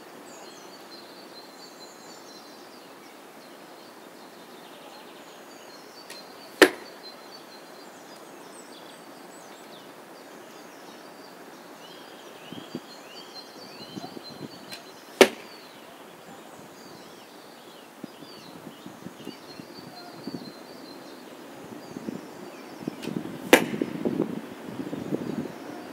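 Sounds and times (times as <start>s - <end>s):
arrows striking target: 6.1s - 6.9s, 14.7s - 15.6s, 23.0s - 24.0s.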